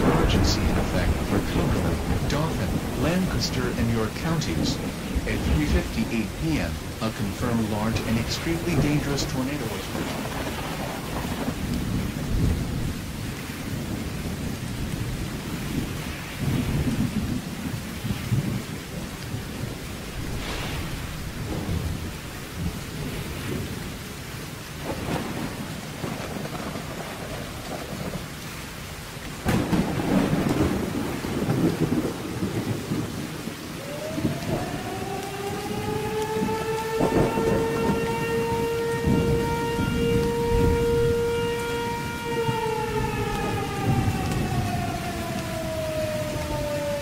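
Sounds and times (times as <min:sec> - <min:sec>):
sharp thunderclap: 0:00.0 - 0:07.0, 0:07.9 - 0:24.0, 0:24.8 - 0:28.2, 0:29.4 - 0:34.8
heavy rain: 0:00.0 - 0:47.0
thunder rumbling: 0:00.0 - 0:47.0.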